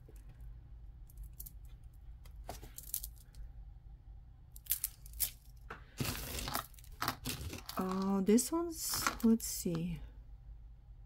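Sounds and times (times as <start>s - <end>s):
plastic bag rustling: 6.0s - 8.1s.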